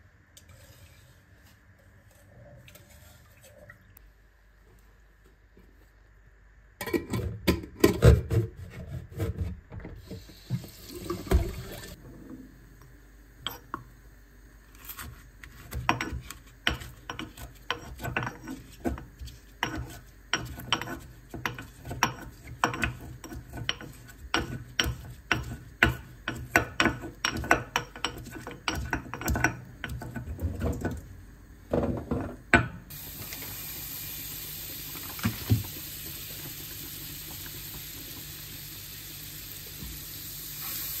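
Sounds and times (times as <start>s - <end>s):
butter sizzling in frying pan: 32.9s - 41.0s.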